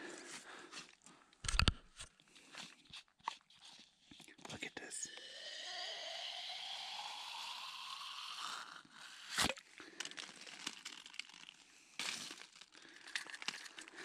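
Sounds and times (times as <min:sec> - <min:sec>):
clicks and rustles of handling: 0:00.8 - 0:04.5, 0:10.0 - 0:14.0.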